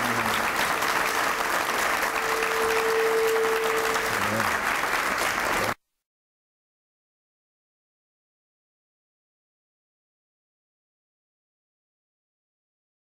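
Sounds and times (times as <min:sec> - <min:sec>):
audience applauding: 0:00.0 - 0:05.8
steady tone: 0:02.1 - 0:04.7.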